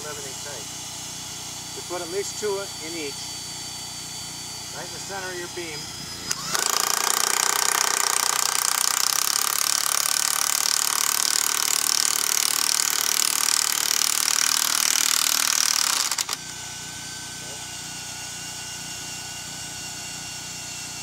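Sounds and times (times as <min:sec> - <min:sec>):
impact driver hammering rattle: 0:06.2 - 0:16.6.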